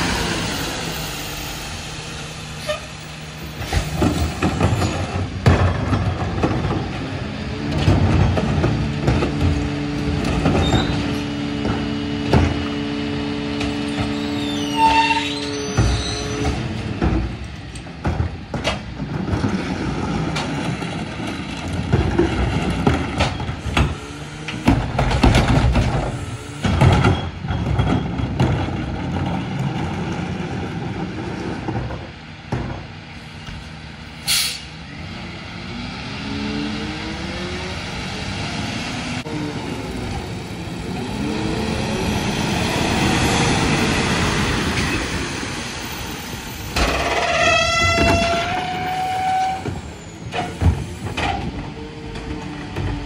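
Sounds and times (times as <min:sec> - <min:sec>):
carts banging against truck: 0:03.6 - 0:07.1, 0:07.7 - 0:12.8, 0:13.5 - 0:30.7, 0:46.7 - 0:53.0
truck engine revving: 0:33.7 - 0:48.9
air brake hiss: 0:34.2 - 0:34.7.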